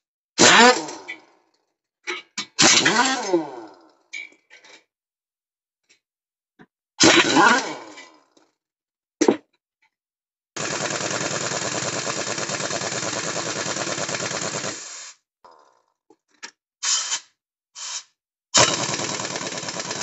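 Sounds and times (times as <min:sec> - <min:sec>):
pneumatic impact wrench hammering: 0:10.6 - 0:15.1, 0:16.8 - 0:20.0.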